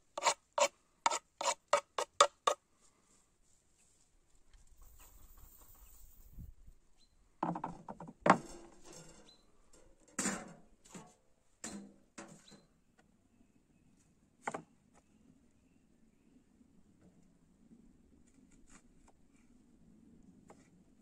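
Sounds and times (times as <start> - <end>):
objects knocking and clattering: 7.4 - 10.6.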